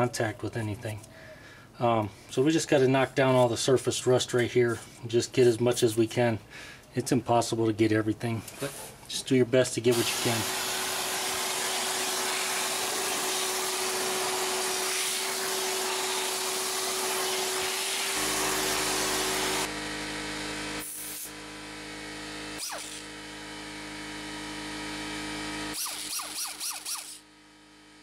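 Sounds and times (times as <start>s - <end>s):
air die grinder hissing and whining: 9.9s - 19.7s, 20.8s - 21.4s.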